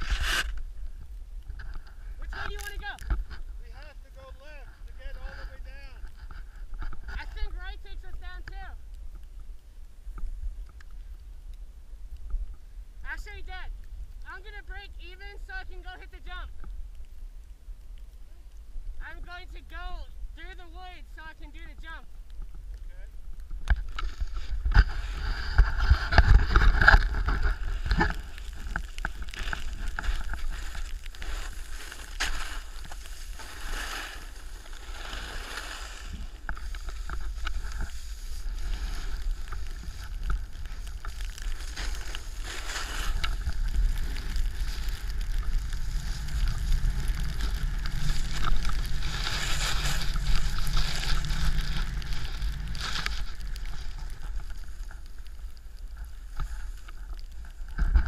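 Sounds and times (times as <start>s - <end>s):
snowboard scraping on snow: 0.0s - 0.6s, 24.1s - 55.0s
wind rumble on microphone: 22.1s - 33.7s, 34.3s - 58.0s.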